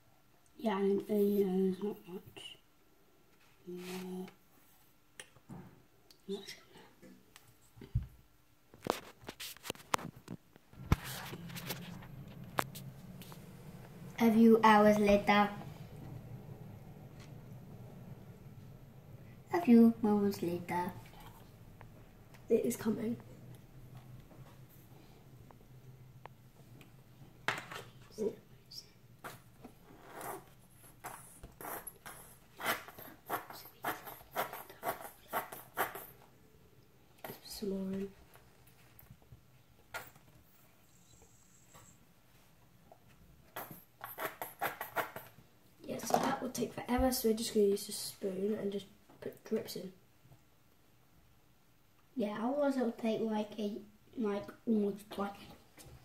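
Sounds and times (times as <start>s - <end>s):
faint low hum: 0.0s - 44.2s.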